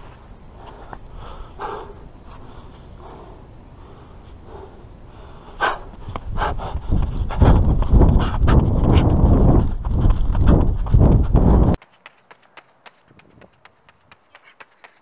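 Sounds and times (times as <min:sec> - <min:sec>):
man breathing hard: 0:00.6 - 0:11.3
running footsteps on track: 0:05.8 - 0:15.0.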